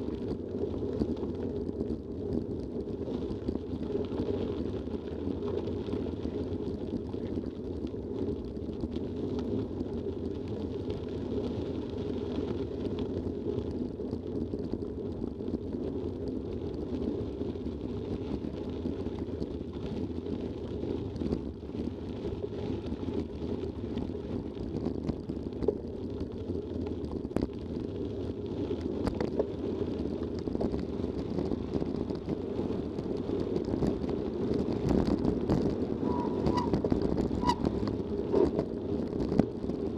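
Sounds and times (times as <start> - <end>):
bike tyres rolling on gravel: 0.0 - 39.9
wind on microphone: 27.2 - 39.9.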